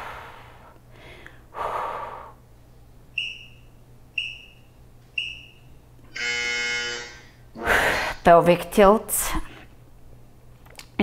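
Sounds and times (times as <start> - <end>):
woman exhaling forcefully: 0.0 - 2.4, 7.6 - 8.2.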